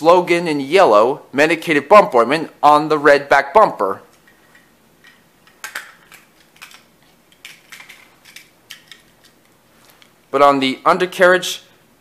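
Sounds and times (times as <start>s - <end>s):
toy cars clicking in hands: 5.5s - 9.4s.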